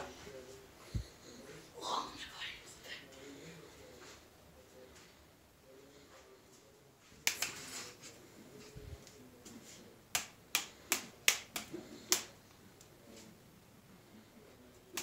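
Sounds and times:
plastic toy swords clacking: 10.2 - 12.4.

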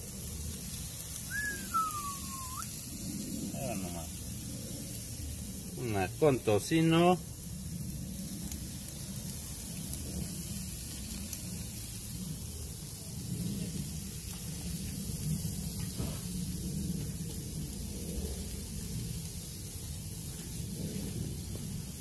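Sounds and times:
hot grill hissing: 0.0 - 22.0.

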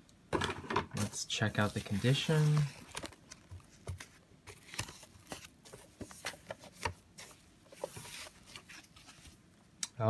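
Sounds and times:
bubble wrap crinkling: 1.0 - 9.4.

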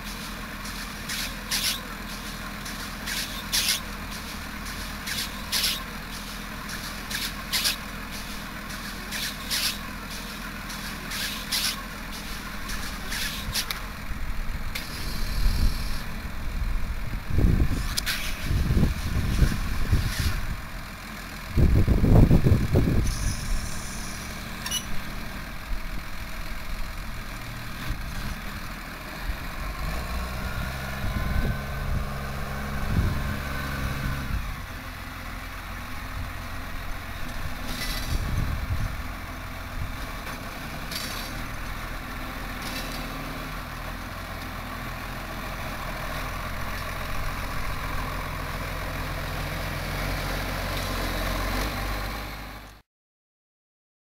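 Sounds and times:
tractor diesel engine running: 0.0 - 52.8
loud low rumble: 29.2 - 34.7.

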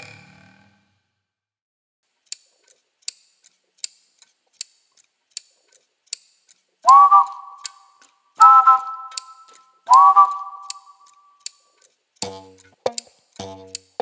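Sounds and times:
held chords: 8.4 - 10.9, 12.2 - 14.0
clock-like ticking: 8.4 - 11.6, 12.2 - 14.0.

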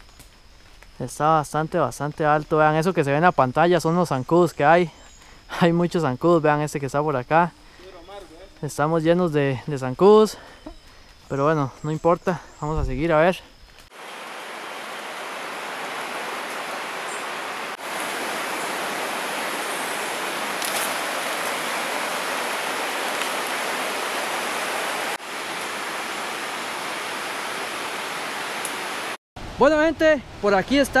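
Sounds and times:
river rushing: 13.9 - 29.2.

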